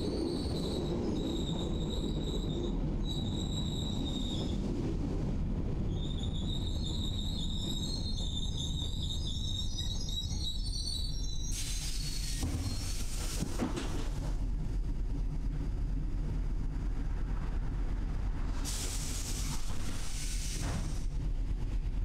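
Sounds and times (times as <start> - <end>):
train wheels squealing: 0.0 - 4.8, 5.8 - 13.5
train rumbling: 0.0 - 22.0.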